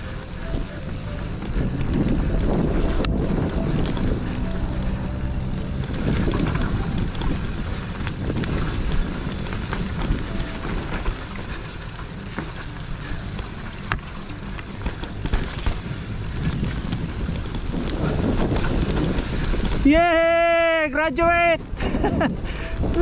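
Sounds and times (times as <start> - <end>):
wind on microphone: 0.0 - 20.6, 21.6 - 23.0
bike tyres rolling on dirt: 0.0 - 23.0
bike clicks and rattles: 1.2 - 20.6.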